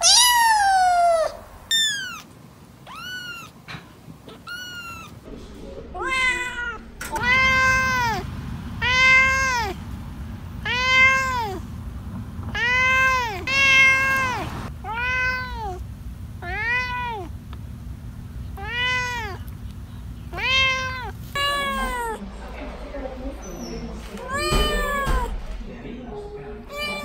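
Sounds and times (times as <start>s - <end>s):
cat meowing: 0.0s - 3.6s, 4.3s - 5.2s, 6.0s - 8.2s, 8.8s - 9.8s, 10.6s - 11.6s, 12.5s - 15.8s, 16.4s - 17.3s, 18.5s - 19.5s, 20.3s - 22.2s, 24.2s - 25.4s, 26.7s - 27.0s
kittens mewing: 0.0s - 5.2s, 6.0s - 9.8s, 10.6s - 11.7s, 12.5s - 17.4s, 18.5s - 19.6s, 20.3s - 22.2s, 24.2s - 25.3s, 26.7s - 27.0s.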